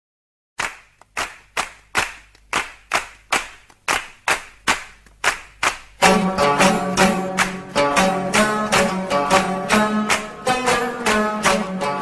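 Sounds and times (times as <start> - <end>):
rhythmic hand claps: 0.6 - 12.0
plucked strings with drone: 6.0 - 12.0.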